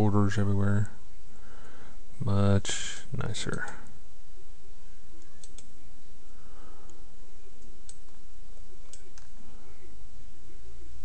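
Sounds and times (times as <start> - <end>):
steady low hum: 0.0 - 11.0
computer mouse clicks: 3.4 - 3.9, 5.2 - 5.7, 7.6 - 8.2, 8.9 - 9.4.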